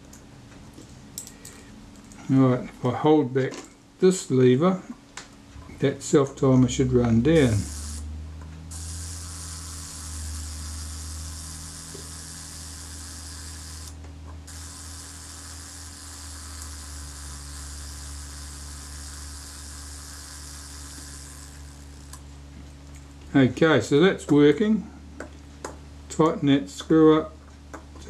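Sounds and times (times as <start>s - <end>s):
camera self-timer buzzing: 7.2s - 22.3s.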